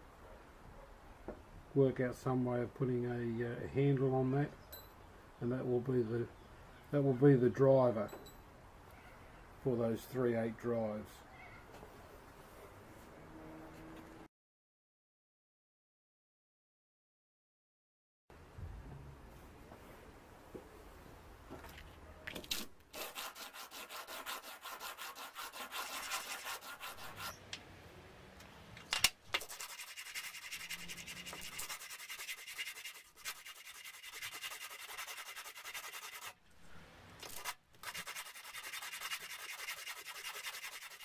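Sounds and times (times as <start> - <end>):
steel bar scraping on abrasive paper: 22.9 - 27.4, 29.4 - 36.4, 37.2 - 41.0.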